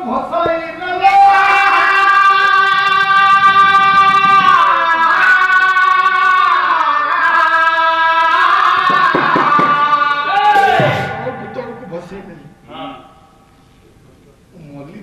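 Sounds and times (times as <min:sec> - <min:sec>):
person singing devotional song: 0:00.0 - 0:11.8.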